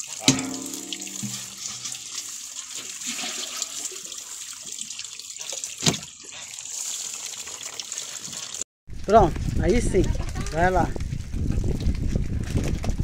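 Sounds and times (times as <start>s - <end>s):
water sloshing and splashing: 0.0s - 8.6s.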